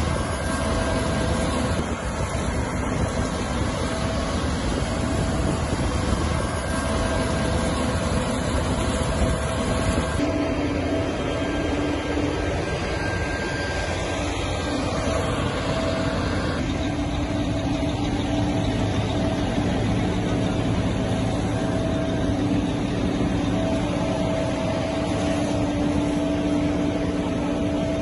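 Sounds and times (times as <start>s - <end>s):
drone propellers humming: 0.0s - 28.0s.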